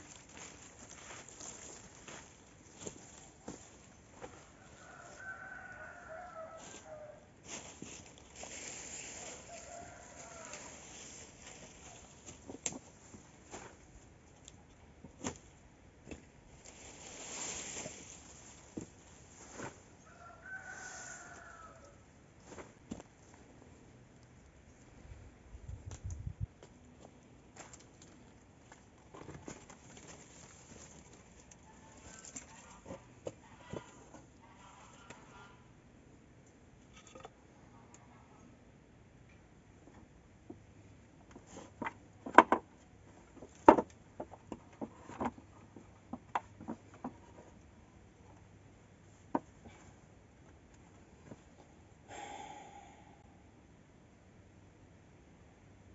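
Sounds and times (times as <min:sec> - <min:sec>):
dry palm fronds rustling: 0:00.0 - 0:14.0, 0:16.5 - 0:23.0, 0:29.1 - 0:33.9
bamboo poles knocking: 0:41.8 - 0:42.7, 0:43.4 - 0:45.4.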